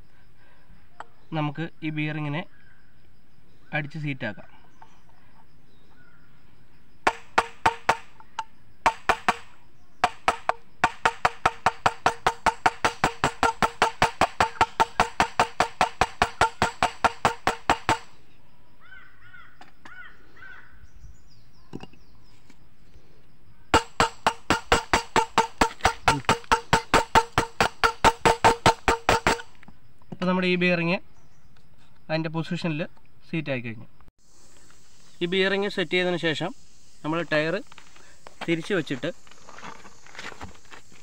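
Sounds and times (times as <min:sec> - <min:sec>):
hammer tapping on metal: 0:07.1 - 0:18.1, 0:23.8 - 0:29.4.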